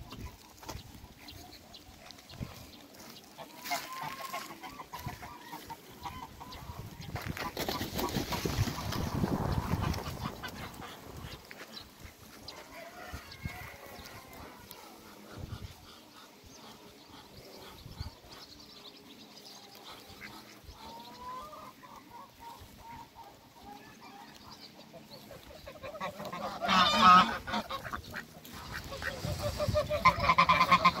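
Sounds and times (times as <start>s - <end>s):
geese and ducks calling: 0.0s - 31.0s
goose honking loudly: 25.7s - 28.0s, 28.6s - 31.0s.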